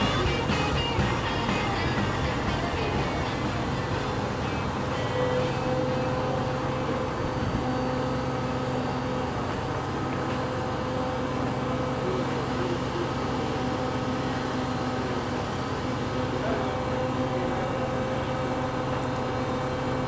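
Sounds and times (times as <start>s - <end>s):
heavy machinery humming: 0.0s - 20.0s.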